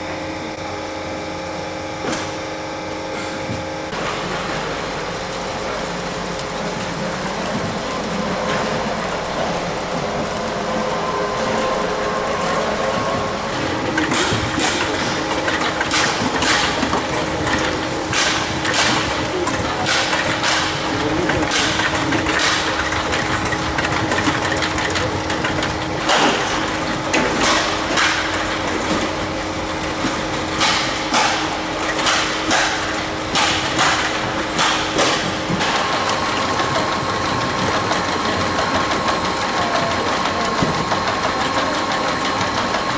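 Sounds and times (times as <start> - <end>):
conveyor hum and rattle: 0.0 - 42.9
steady tone: 35.7 - 42.9.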